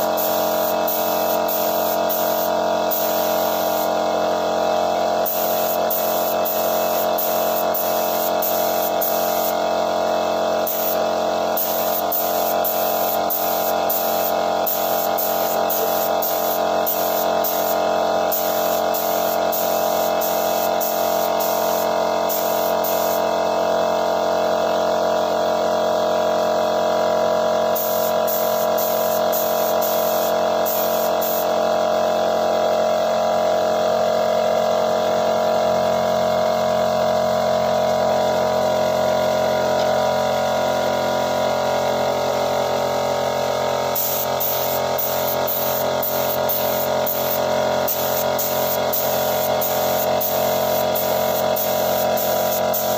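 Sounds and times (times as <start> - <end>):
spray gun hissing: 0.0 - 23.4, 27.8 - 31.6, 43.9 - 52.9
air compressor humming: 0.0 - 52.9.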